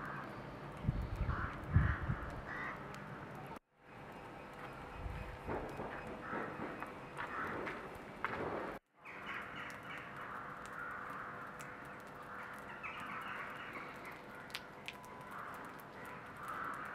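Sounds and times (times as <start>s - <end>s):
crows cawing: 0.0s - 0.4s, 1.2s - 2.9s, 5.9s - 8.0s, 9.1s - 16.9s
outdoor background noise: 0.0s - 16.9s.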